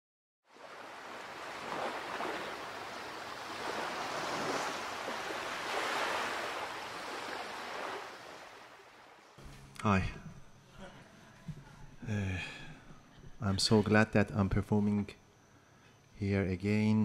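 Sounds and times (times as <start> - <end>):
surf washing onto beach: 0.5 - 9.3.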